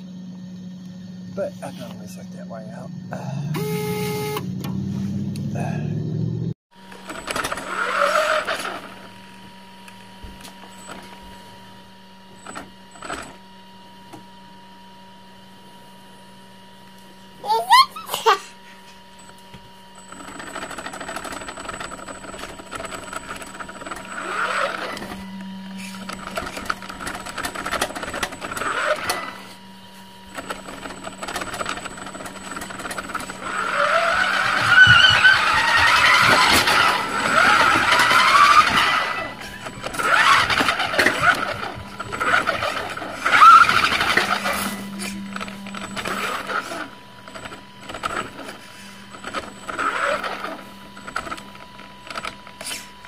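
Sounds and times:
toy truck motor whining: 0:03.2 - 0:04.8, 0:06.8 - 0:14.2, 0:17.4 - 0:53.0
short sharp squeals: 0:03.5 - 0:05.9.

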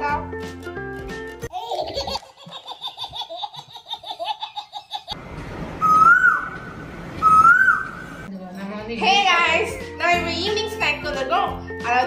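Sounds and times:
rising whistles: 0:05.8 - 0:08.3.

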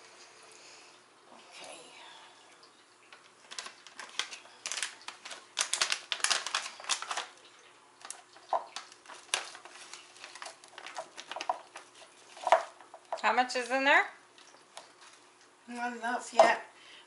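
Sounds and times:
plastic pouch crinkling: 0:03.1 - 0:13.0.

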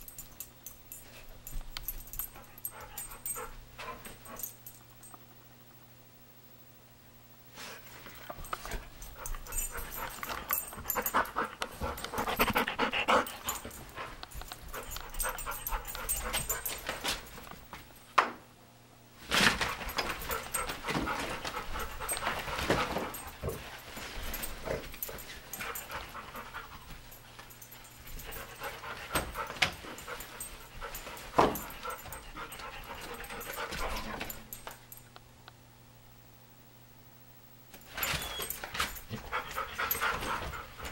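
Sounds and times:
dog panting: 0:08.6 - 0:16.9, 0:19.8 - 0:23.4, 0:25.0 - 0:34.4, 0:39.1 - 0:40.9.

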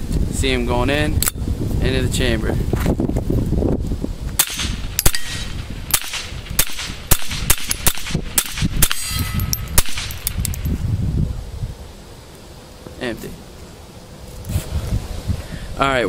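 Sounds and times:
suppressed pistol shots: 0:04.4 - 0:10.6.

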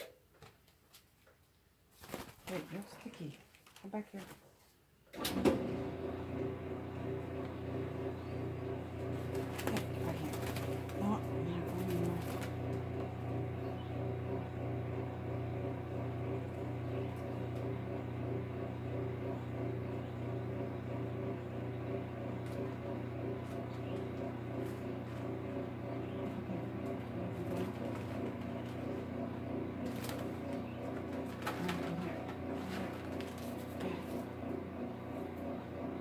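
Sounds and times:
low steady hum: 0:05.2 - 0:36.0
newspaper and tissue rustling: 0:29.8 - 0:34.3.

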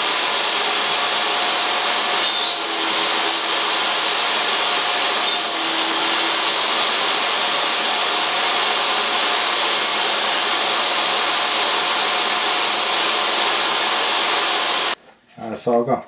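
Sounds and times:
table saw cutting wood: 0:00.0 - 0:15.0.

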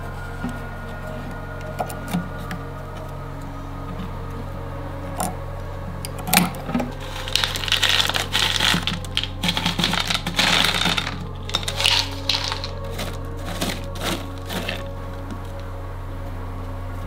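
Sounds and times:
pebbles clattering onto gravel: 0:07.0 - 0:15.5.

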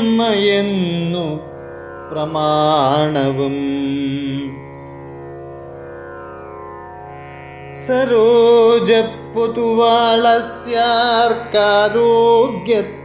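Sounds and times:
solo voice singing: 0:07.8 - 0:13.0.

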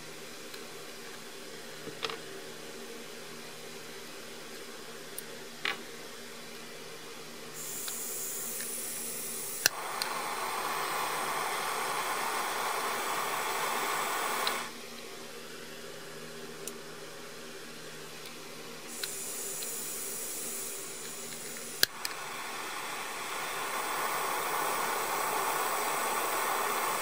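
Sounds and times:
gas hissing from soldering iron: 0:07.6 - 0:14.7, 0:18.9 - 0:27.0
burning gas rushing: 0:07.6 - 0:14.8, 0:18.9 - 0:27.0
igniter click: 0:14.4 - 0:14.6.

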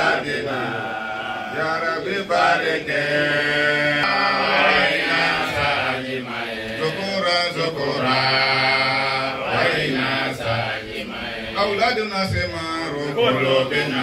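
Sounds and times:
man chanting into a microphone: 0:11.5 - 0:14.0.

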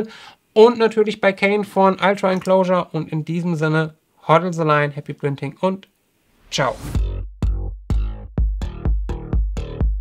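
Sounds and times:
deep bass line: 0:06.8 - 0:10.0
drum machine beat: 0:06.8 - 0:10.0.

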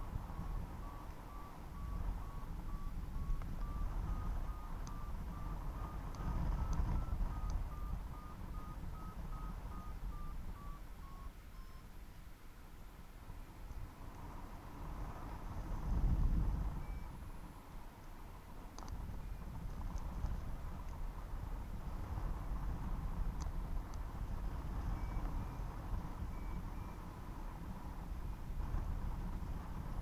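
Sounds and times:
wind rushing over microphone: 0:00.0 - 0:11.1, 0:13.9 - 0:17.6, 0:18.6 - 0:30.0
variometer beeping: 0:00.0 - 0:11.9, 0:16.6 - 0:17.5, 0:18.2 - 0:20.2, 0:23.4 - 0:27.3.

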